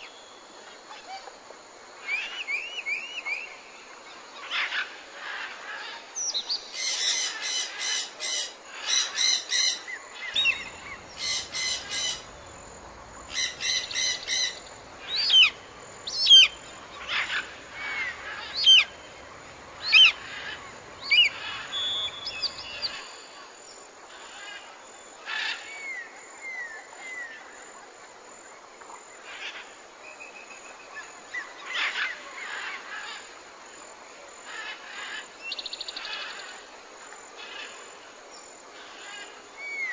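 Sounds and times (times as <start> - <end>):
faint background hiss: 0.0 - 39.9
small birds chirping: 6.2 - 23.3.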